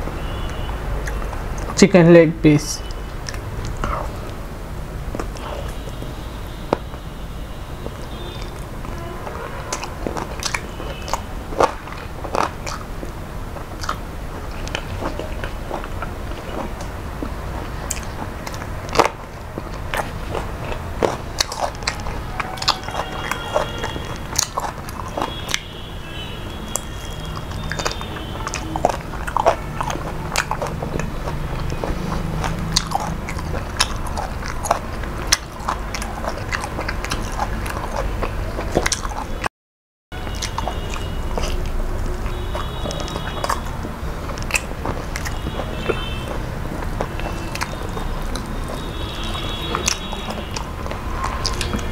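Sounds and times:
person chewing food: 0.0s - 1.8s, 2.8s - 39.5s, 40.2s - 51.9s
mouth clicks: 7.8s - 39.5s, 40.2s - 51.9s.

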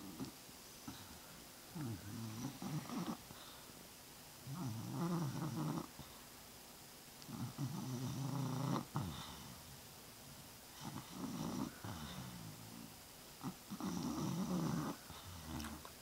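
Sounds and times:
dog snoring: 0.0s - 1.1s, 1.8s - 3.3s, 4.4s - 6.1s, 7.3s - 9.7s, 10.7s - 15.9s.

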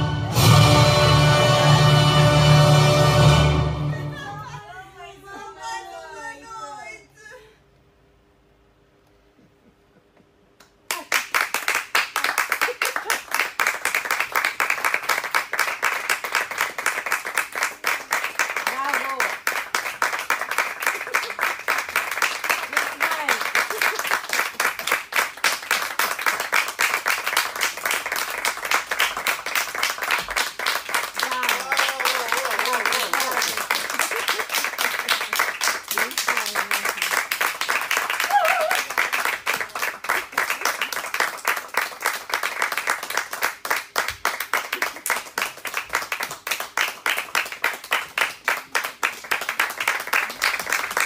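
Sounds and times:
audience applauding: 10.7s - 51.0s.

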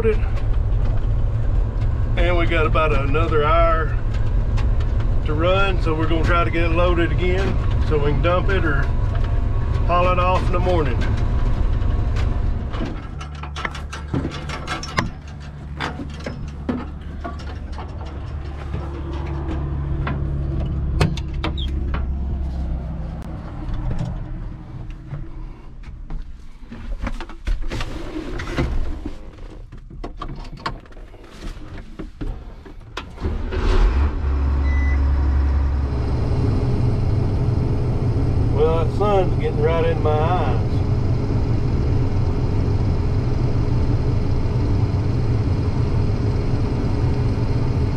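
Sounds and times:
farm vehicle engine droning: 0.0s - 25.7s, 33.0s - 47.9s
knocks and rattles: 0.2s - 22.4s.

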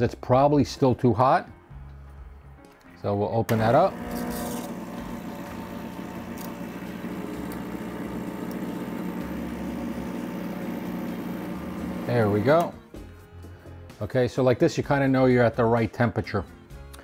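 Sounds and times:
espresso machine pump humming: 3.5s - 12.7s.

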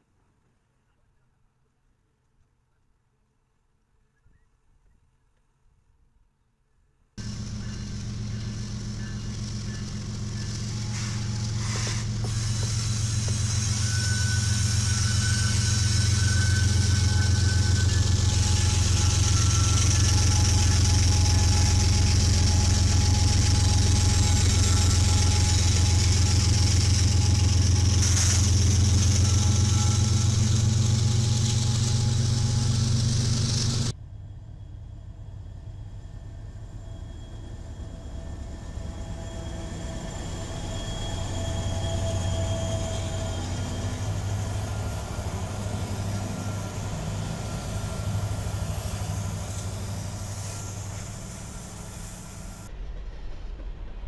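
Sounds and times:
freight cars rolling: 7.2s - 33.9s, 40.3s - 52.7s
diesel locomotives droning: 7.2s - 54.0s
diesel locomotives passing: 7.2s - 54.0s.

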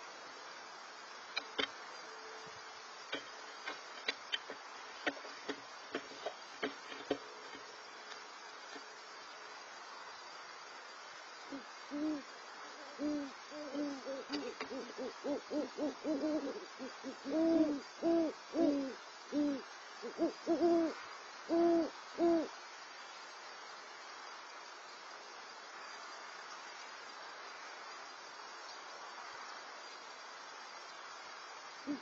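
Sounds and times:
owls hooting: 11.5s - 22.5s.

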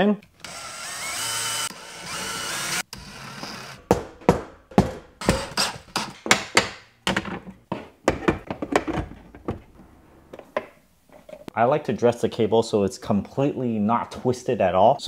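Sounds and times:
cordless drill boring drywall: 0.4s - 3.8s.

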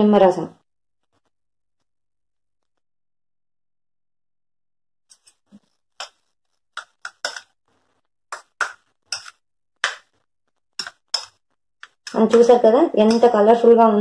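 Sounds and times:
spoon scraping paper bowl: 5.1s - 13.7s.

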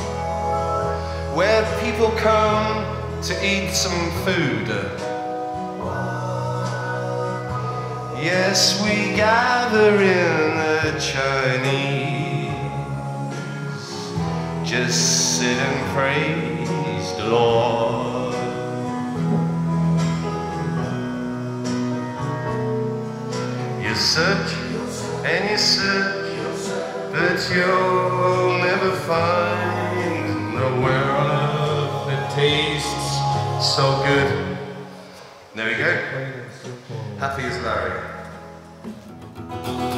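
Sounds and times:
man singing wordless vocal: 0.0s - 20.0s, 23.6s - 37.2s
rock band playing chords: 0.0s - 35.5s, 37.4s - 39.9s
rock band playing: 38.2s - 39.9s.

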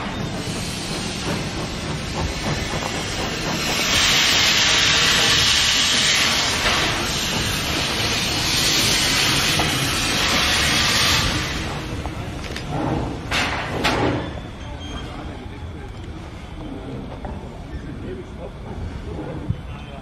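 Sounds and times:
steam hissing from locomotive: 0.0s - 14.3s.

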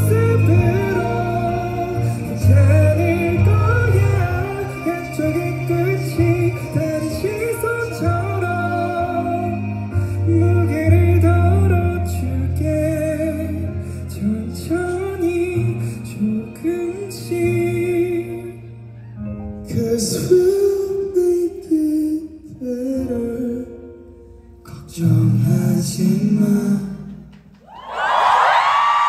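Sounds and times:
bass guitar: 0.0s - 18.8s
man singing: 0.0s - 18.8s, 19.6s - 27.3s
crowd screaming and cheering: 0.0s - 20.2s, 27.5s - 29.0s
stage piano: 0.0s - 29.0s.

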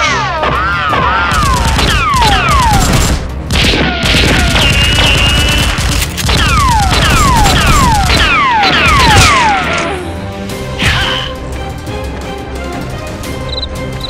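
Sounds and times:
rattle of gunshots: 1.3s - 9.8s.

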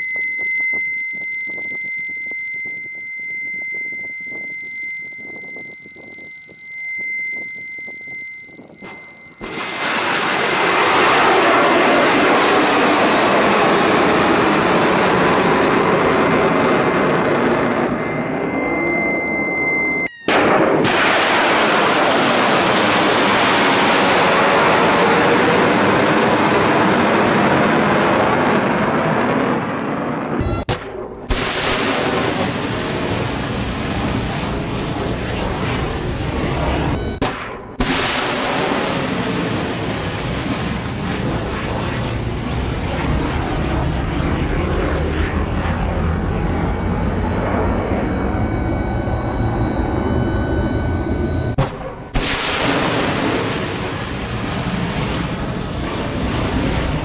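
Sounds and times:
missile rocket motors roaring: 8.8s - 29.0s, 31.2s - 37.1s, 37.8s - 57.0s.

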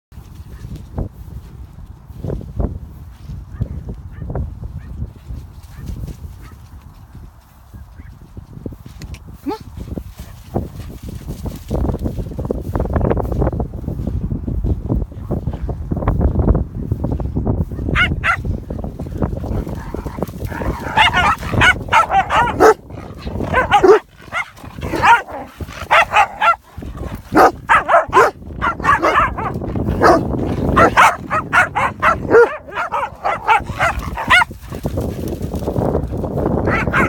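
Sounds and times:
wind rumbling on microphone: 0.1s - 37.0s
dogs barking and yipping: 17.8s - 18.5s, 19.3s - 35.1s, 36.6s - 37.0s.

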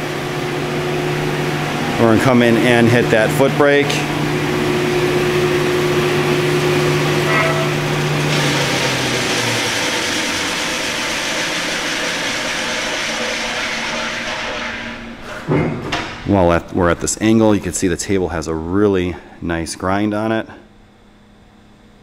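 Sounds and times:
bandsaw humming: 0.0s - 15.1s.

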